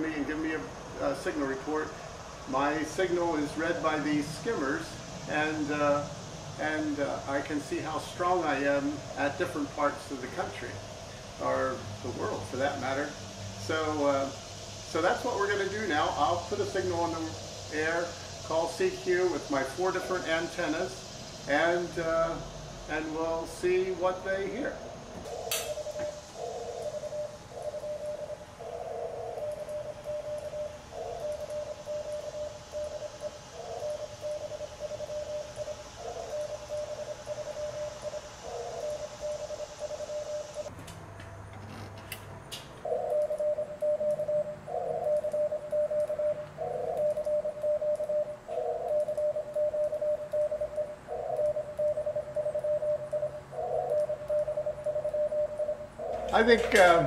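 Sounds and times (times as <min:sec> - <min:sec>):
morse code tone: 0:29.4 - 0:40.7, 0:42.9 - 0:57.0.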